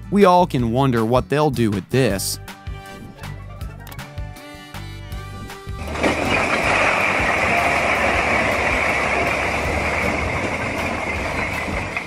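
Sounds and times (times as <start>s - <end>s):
bricks clattering onto ground: 5.8s - 12.0s.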